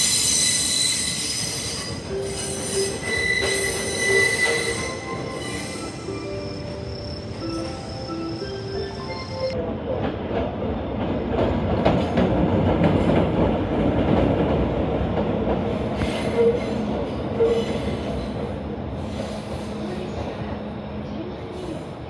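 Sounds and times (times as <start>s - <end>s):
train wheel squeals: 0.0s - 9.6s, 16.0s - 18.4s.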